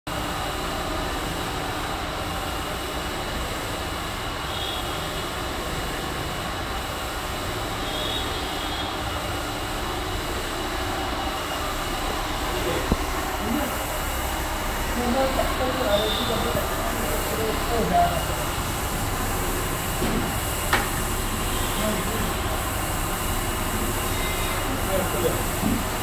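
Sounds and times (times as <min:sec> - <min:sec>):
mixer motor droning: 0:06.4 - 0:26.0
faint high whine: 0:10.4 - 0:19.5.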